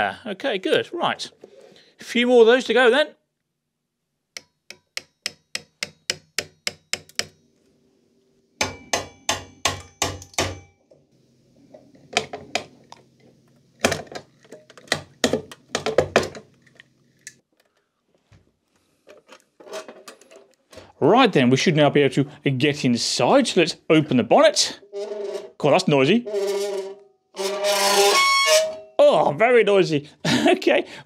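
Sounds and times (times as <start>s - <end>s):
knife tapping plastic pins: 4.4s - 7.4s.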